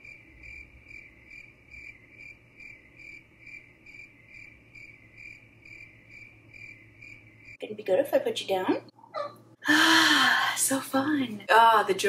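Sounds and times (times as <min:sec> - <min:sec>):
cricket chirping: 0:00.0 - 0:07.6.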